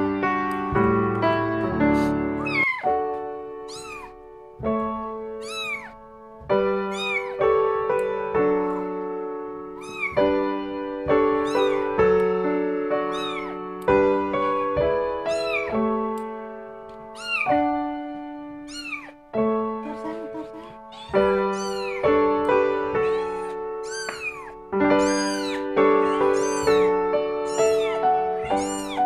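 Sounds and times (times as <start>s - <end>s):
piano music: 0.0s - 29.0s
kitten mewing: 1.8s - 3.0s, 3.6s - 4.2s, 5.4s - 6.0s, 6.9s - 7.4s, 9.8s - 12.0s, 13.1s - 13.6s, 14.4s - 15.8s, 17.1s - 17.6s, 18.6s - 19.2s, 19.9s - 29.0s.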